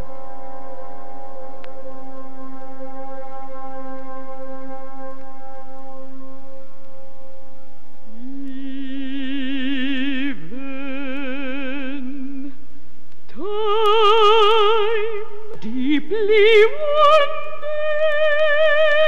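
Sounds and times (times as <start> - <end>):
operatic voice singing: 8.2 - 12.6, 13.3 - 19.0.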